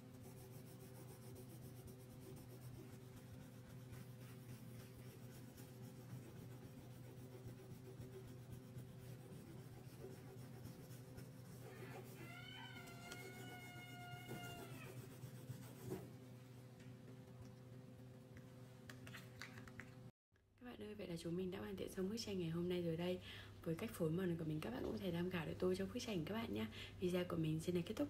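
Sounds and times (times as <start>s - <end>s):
low electrical hum: 0.0s - 28.0s
crayon scratching on paper: 0.1s - 16.1s.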